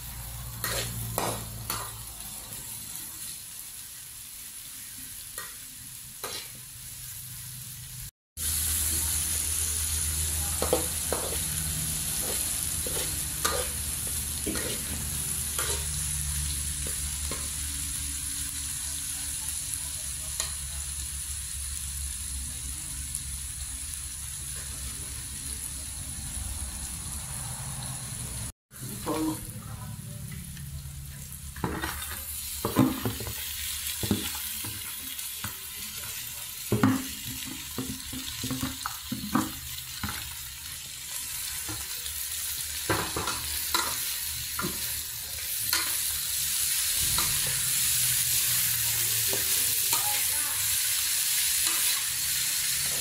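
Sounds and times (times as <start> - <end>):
food sizzling in a wok: 0.0 - 53.0
metal spatula scraping a pan: 0.5 - 2.0, 6.2 - 6.6, 10.6 - 16.2.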